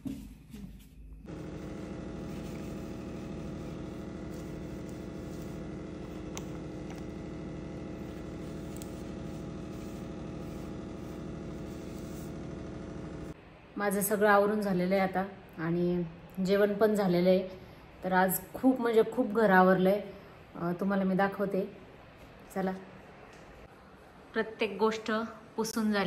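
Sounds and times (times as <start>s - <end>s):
motor humming: 1.3s - 13.4s.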